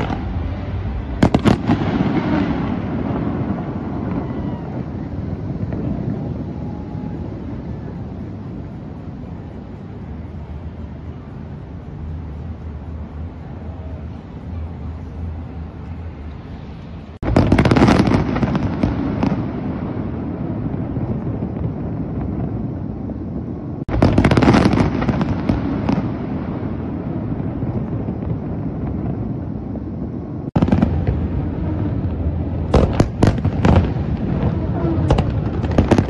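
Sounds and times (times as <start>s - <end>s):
low rumble: 0.0s - 6.9s, 26.5s - 36.0s
fireworks bangs and crackling: 0.0s - 36.0s.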